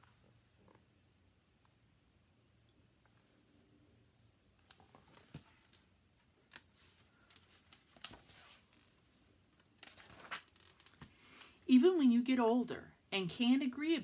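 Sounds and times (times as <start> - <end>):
paper pages rustling: 6.5 - 9.1, 9.7 - 11.1.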